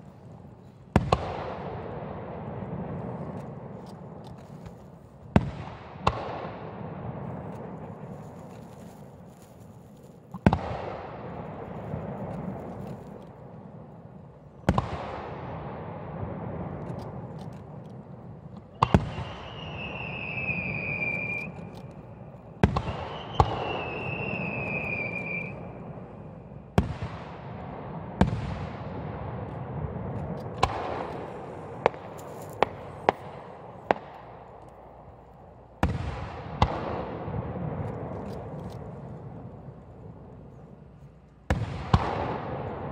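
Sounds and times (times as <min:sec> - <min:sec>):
firework bangs with rolling echo: 0:00.0 - 0:04.2, 0:05.2 - 0:08.2, 0:10.3 - 0:40.3, 0:41.5 - 0:42.9
falling firework whistle: 0:19.0 - 0:21.8, 0:22.8 - 0:25.7.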